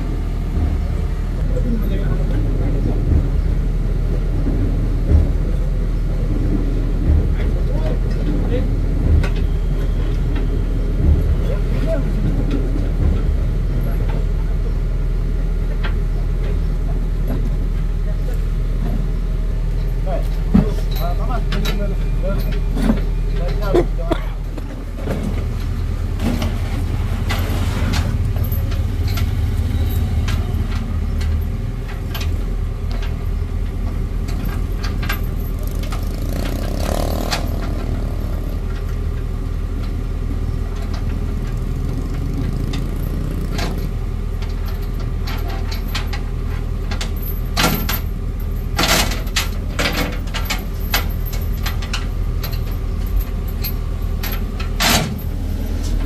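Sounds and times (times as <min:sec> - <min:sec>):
truck engine idling: 0:00.0 - 0:56.0
metallic clanks and knocks: 0:19.8 - 0:56.0.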